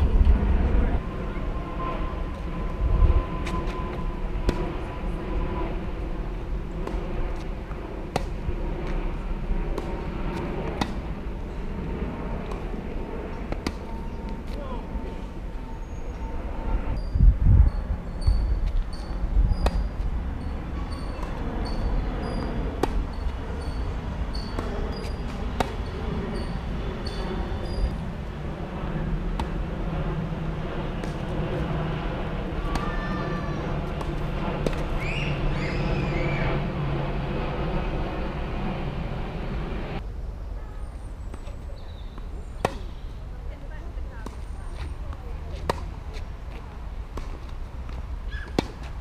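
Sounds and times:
faint low rumble: 0.0 - 49.0
tennis ball struck by rackets: 6.8 - 7.0, 8.1 - 9.0, 10.7 - 11.1, 13.5 - 13.9, 21.2 - 27.8, 29.3 - 29.6, 31.0 - 31.3, 33.9 - 34.9, 42.6 - 43.0, 45.6 - 45.9, 48.4 - 48.9
passing vehicle rumble: 18.9 - 40.0
tennis ball bouncing on hard court: 20.9 - 27.8.

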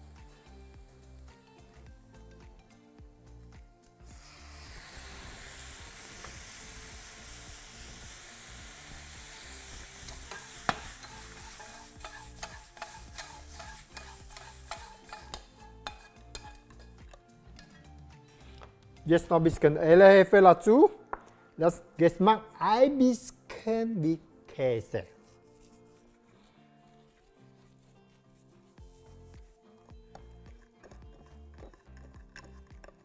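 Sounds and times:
food sizzling in hot pan: 0.0 - 1.8, 4.0 - 17.2
spatula knocking against pan: 10.3 - 11.2, 12.0 - 17.7.

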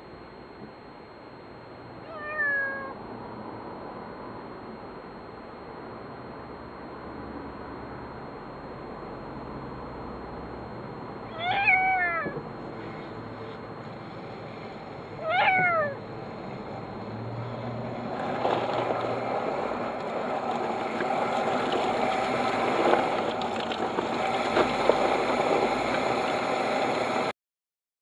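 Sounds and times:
kitten meowing: 2.0 - 3.0, 11.3 - 12.4, 15.2 - 16.0
water pouring out of pipe: 18.2 - 27.3.

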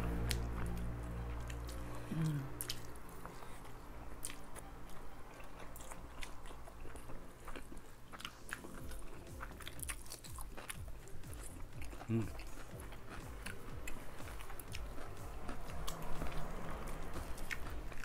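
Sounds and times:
close chewing with crunches: 0.0 - 18.0
person humming: 1.8 - 2.8, 11.9 - 12.8.

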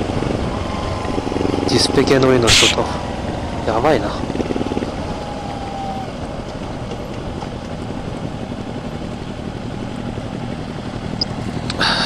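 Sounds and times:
wind and road noise hiss: 0.0 - 3.5
motorcycle engine at low revs: 0.0 - 12.0.

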